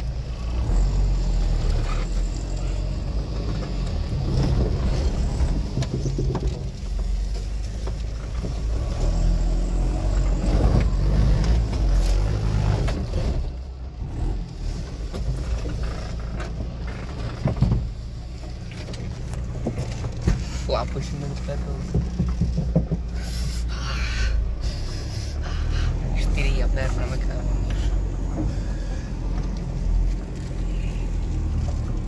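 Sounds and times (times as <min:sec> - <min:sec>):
off-road vehicle engine running: 0:00.0 - 0:32.0
knocks: 0:21.8 - 0:23.2.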